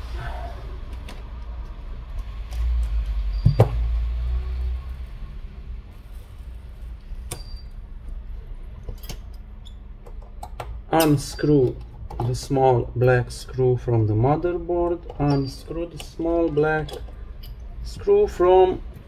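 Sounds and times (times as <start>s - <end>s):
sharp clicks and taps of tools: 8.8s - 12.4s.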